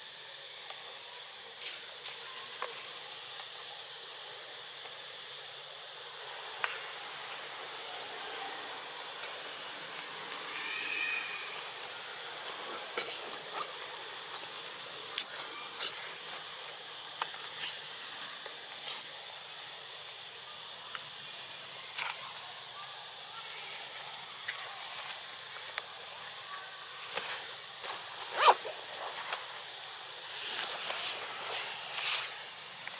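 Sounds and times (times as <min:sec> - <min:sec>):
steady hiss: 0:00.0 - 0:32.9.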